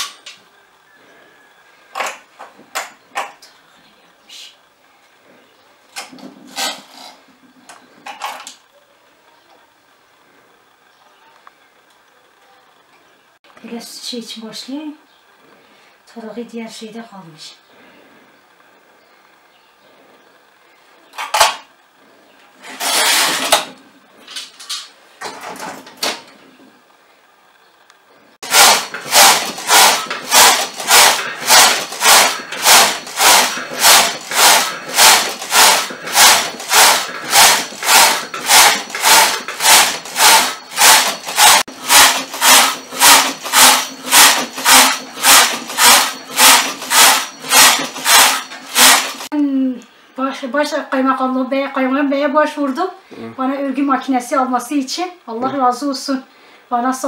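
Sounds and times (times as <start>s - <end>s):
knitting machine carriage clattering: 22.7s - 23.7s, 28.4s - 49.3s.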